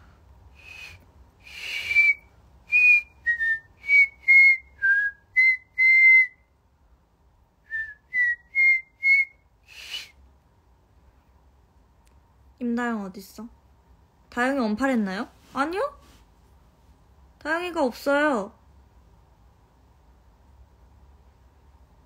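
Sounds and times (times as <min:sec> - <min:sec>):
woman whistling a tune: 0:00.6 - 0:06.4, 0:07.7 - 0:10.2.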